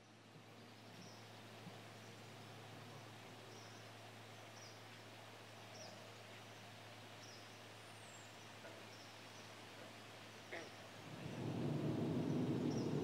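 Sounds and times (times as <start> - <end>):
steady low hum: 11.0 - 13.0.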